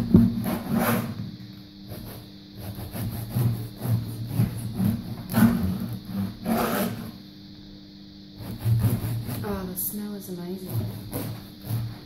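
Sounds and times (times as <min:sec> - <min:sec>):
bread knife sawing through loaf: 0:00.4 - 0:01.2, 0:01.9 - 0:07.2, 0:08.4 - 0:09.6, 0:10.6 - 0:12.0.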